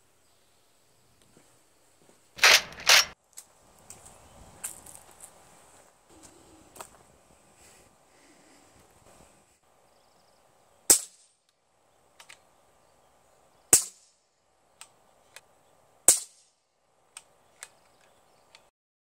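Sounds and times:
air rifle shots: 0:02.4 - 0:03.2, 0:10.9 - 0:11.4, 0:13.7 - 0:14.1, 0:16.1 - 0:16.6.

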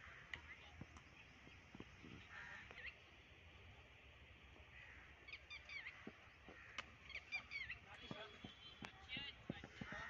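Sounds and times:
faint birds chirping: 0:00.0 - 0:10.0.

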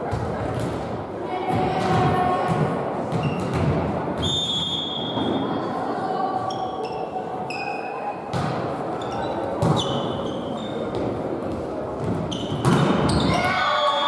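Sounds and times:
sneakers squeaking on court: 0:03.1 - 0:04.3, 0:06.5 - 0:13.5.

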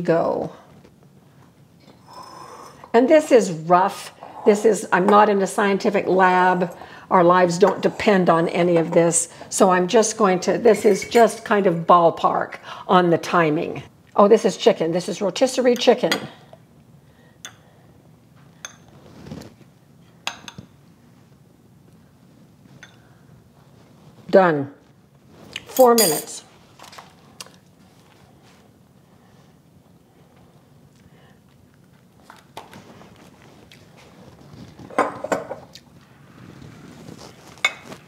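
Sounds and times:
fork clinking on ceramic bowl: 0:25.8 - 0:26.4.

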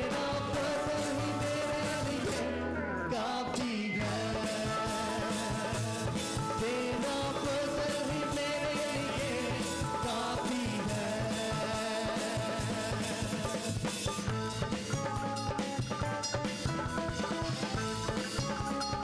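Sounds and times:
voices singing: 0:00.0 - 0:13.7
band playing: 0:00.0 - 0:19.0.

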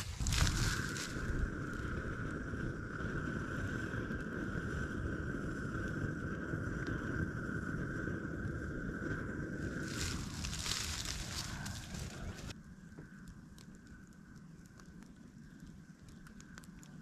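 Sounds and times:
propane burner rushing: 0:00.0 - 0:12.5.

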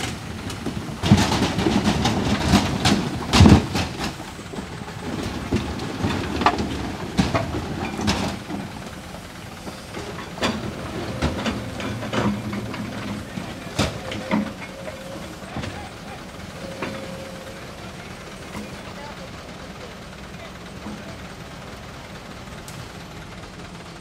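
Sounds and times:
excavator engine rumble: 0:00.0 - 0:24.0
bucket scraping and knocking metal: 0:09.7 - 0:18.9.

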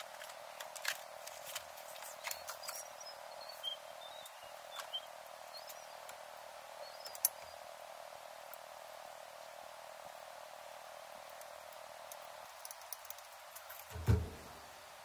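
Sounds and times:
faint high chirping squeaks: 0:01.9 - 0:06.1, 0:06.8 - 0:07.6.

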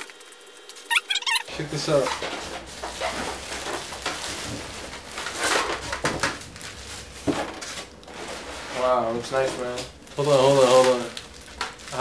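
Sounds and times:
foam packaging rubbing and squeaking: 0:00.8 - 0:12.0.

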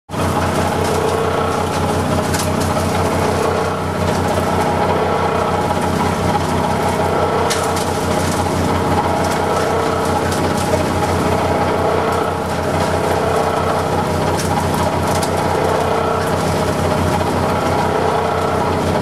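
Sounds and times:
hammer mill pulverizing clay: 0:00.1 - 0:19.0
tractor engine pulsing: 0:00.1 - 0:19.0
clay clattering into hopper: 0:07.4 - 0:17.3.

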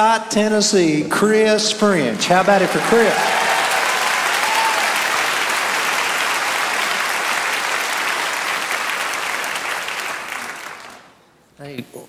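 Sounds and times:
audience applauding: 0:01.8 - 0:11.2.

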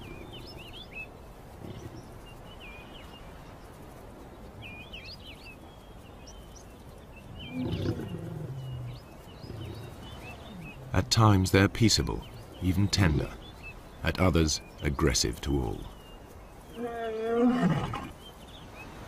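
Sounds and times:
small birds chirping: 0:00.0 - 0:19.0
lion growling: 0:07.4 - 0:11.1.

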